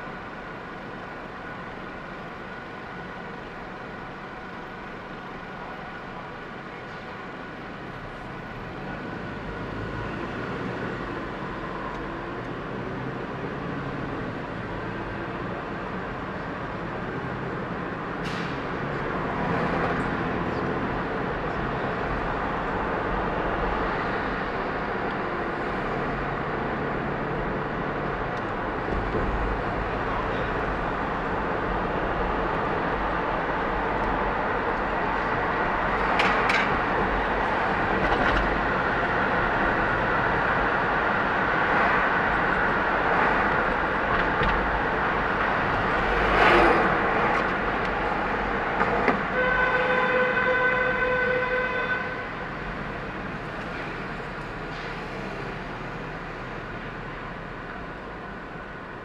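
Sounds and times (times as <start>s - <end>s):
road and engine rumble: 0.0s - 59.0s
passing vehicles hissing: 12.6s - 49.4s, 50.0s - 59.0s.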